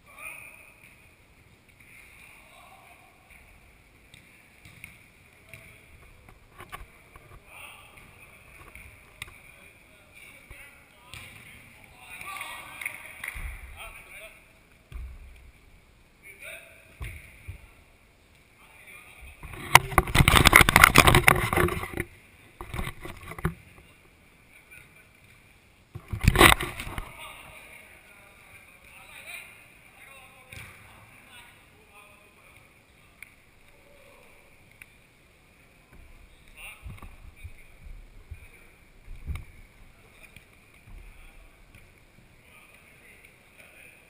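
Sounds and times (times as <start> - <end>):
ball kicks: 4.1 - 6.1, 11.1 - 11.6, 14.9 - 15.4, 17.0 - 17.7, 30.5 - 30.9.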